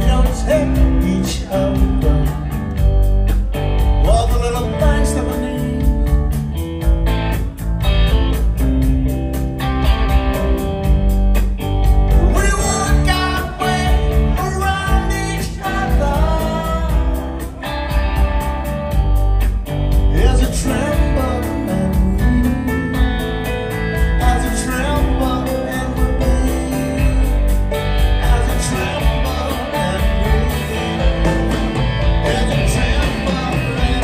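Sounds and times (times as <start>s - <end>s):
man singing: 0.0s - 2.6s, 4.0s - 6.3s, 12.2s - 17.6s, 20.1s - 23.3s, 24.0s - 34.0s
live rock band playing: 0.0s - 34.0s.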